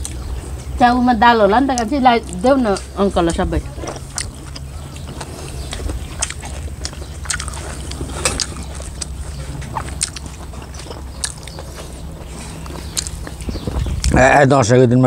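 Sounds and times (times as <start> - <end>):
chewing food: 0.0 - 14.3
steady low hum: 0.0 - 15.0
wet mouth smacks and clicks: 4.0 - 9.2, 9.8 - 11.6, 12.6 - 14.2.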